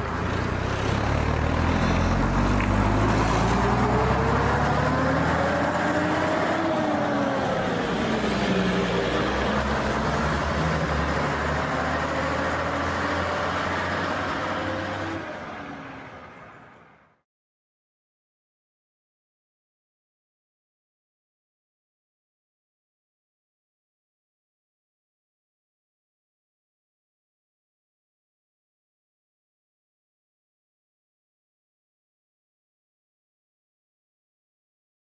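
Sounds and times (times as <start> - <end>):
bus engine running under load: 0.0 - 17.2
engine whine: 0.0 - 17.2.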